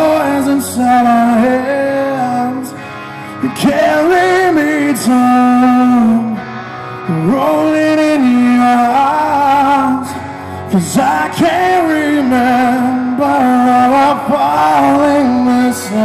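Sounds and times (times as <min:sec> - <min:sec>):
guitar: 0:00.0 - 0:16.0
man singing rock: 0:00.0 - 0:16.0.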